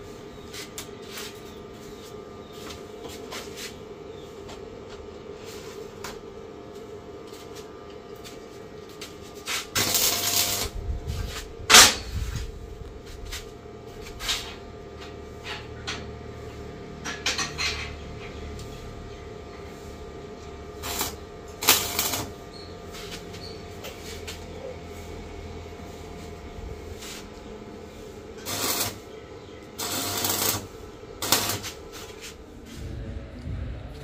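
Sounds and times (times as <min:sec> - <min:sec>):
arc welding crackle: 0:07.5 - 0:14.6, 0:20.4 - 0:34.0.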